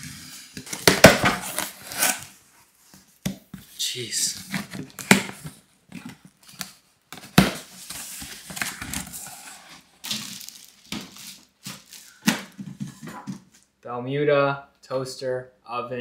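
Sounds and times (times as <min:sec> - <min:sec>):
cardboard and foam scraping: 0:00.0 - 0:03.0, 0:07.5 - 0:13.6
knife slitting packing tape: 0:01.4 - 0:02.3
plastic wrapping crinkling: 0:06.2 - 0:13.7.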